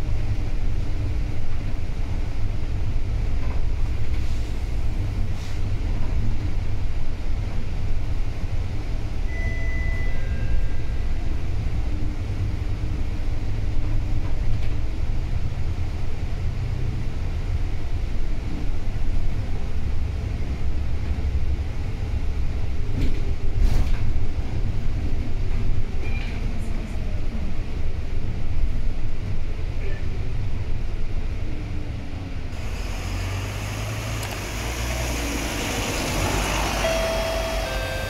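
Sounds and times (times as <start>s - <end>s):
road noise: 0.0s - 9.3s, 10.9s - 38.0s
bus engine rumble: 0.0s - 38.0s
brief high tone: 9.3s - 11.0s, 35.8s - 38.0s.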